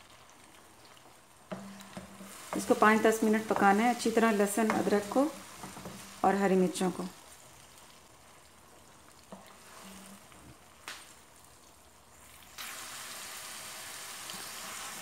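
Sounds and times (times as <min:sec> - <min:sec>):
paste and chillies sizzling in a pot: 0:00.0 - 0:15.0
spatula stirring in a pot: 0:00.3 - 0:10.8.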